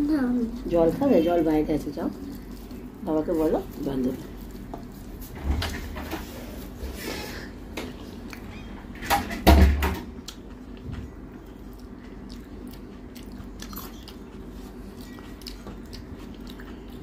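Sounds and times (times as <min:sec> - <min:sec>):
faint steady hum: 0:00.0 - 0:17.0
chewing food: 0:00.4 - 0:05.4, 0:07.8 - 0:08.7, 0:10.2 - 0:17.0.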